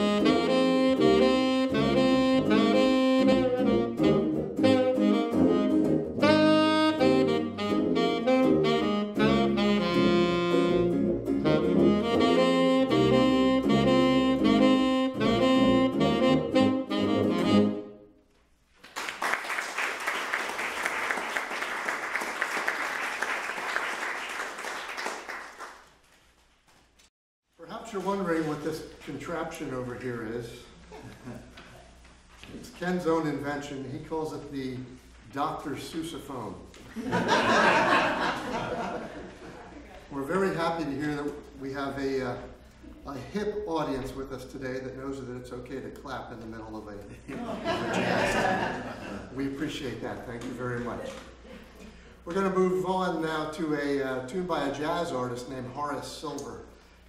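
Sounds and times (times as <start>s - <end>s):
small jazz group playing: 0.0s - 18.0s
tenor saxophone lead: 0.0s - 18.1s
audience applauding: 18.8s - 26.0s.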